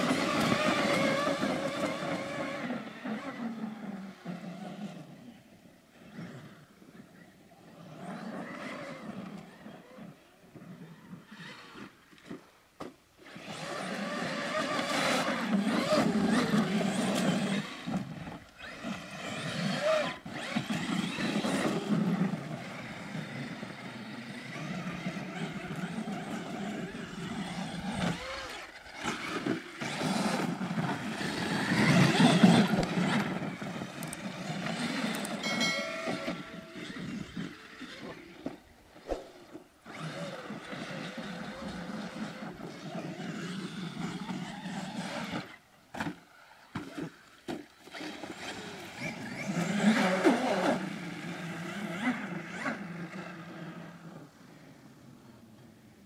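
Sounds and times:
tyres on sand and dirt: 0.0 - 3.4, 11.4 - 52.8
rc truck motor whine: 0.0 - 12.4, 13.2 - 56.0
short electronic chime: 35.4 - 36.7.

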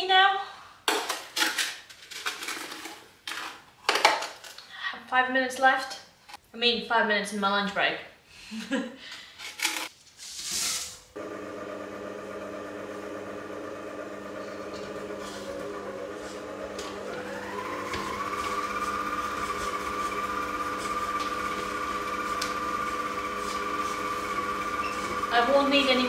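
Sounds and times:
stand mixer motor whine: 11.2 - 26.0.

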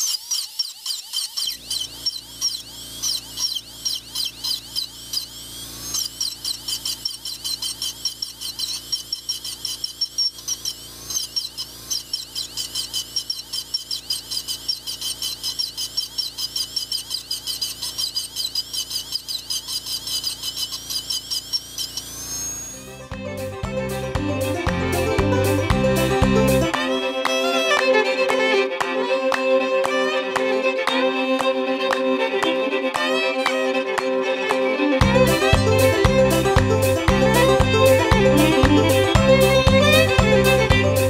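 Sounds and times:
dental drill engraving steel: 0.0 - 23.1, 35.0 - 41.0.

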